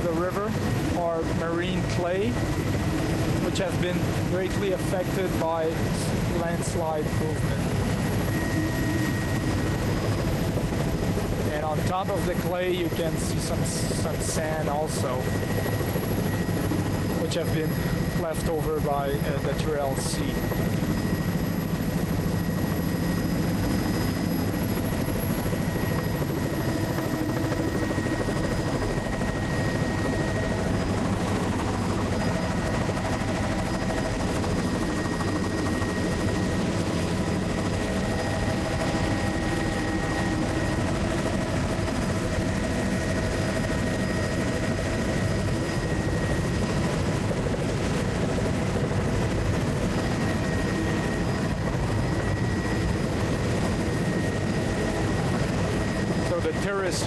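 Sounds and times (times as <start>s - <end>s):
light aircraft engine drone: 0.0s - 57.0s.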